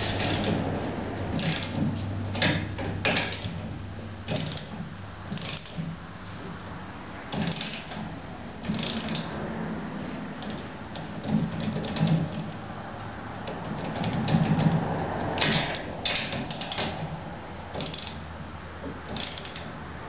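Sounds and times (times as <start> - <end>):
hand ratchet clicking: 1.3 - 3.6, 4.3 - 6.0, 7.3 - 9.3, 13.3 - 17.1, 17.7 - 18.3, 19.0 - 19.8.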